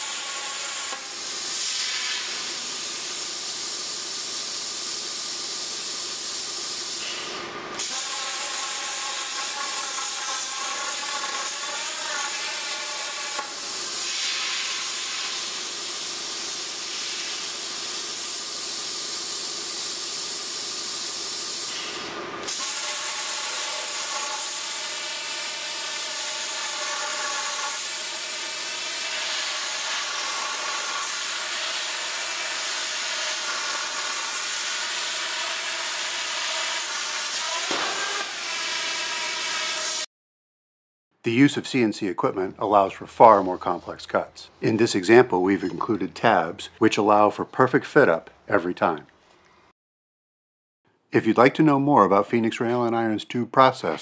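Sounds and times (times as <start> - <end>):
plasma torch cutting steel: 0.0 - 40.1.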